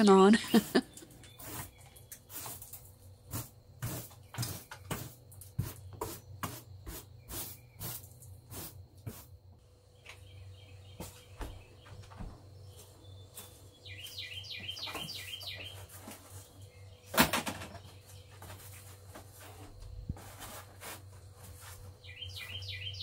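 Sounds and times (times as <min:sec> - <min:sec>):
broom sweeping a floor: 0:00.5 - 0:09.4, 0:12.7 - 0:16.7, 0:18.1 - 0:23.0.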